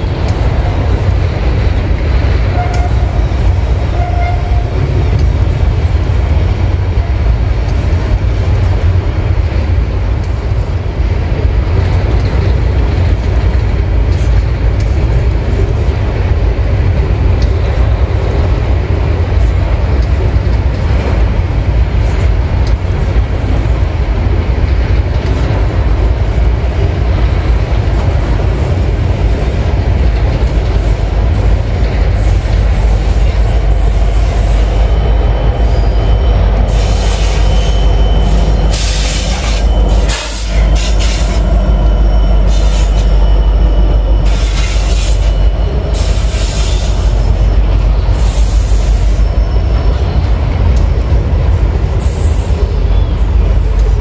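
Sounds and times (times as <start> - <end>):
freight train rumbling: 0.0 - 54.0.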